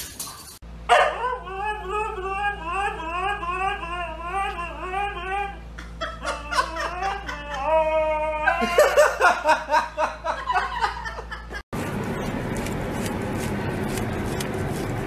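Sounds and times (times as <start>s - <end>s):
husky howling: 0.9s - 5.7s.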